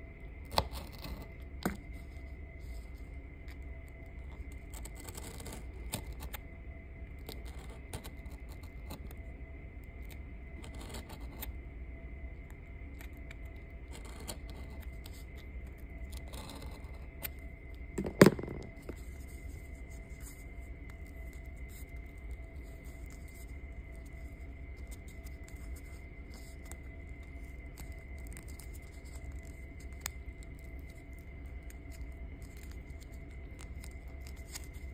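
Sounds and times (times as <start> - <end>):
background hum: 0.0 - 34.9
loud knock: 18.0 - 18.8.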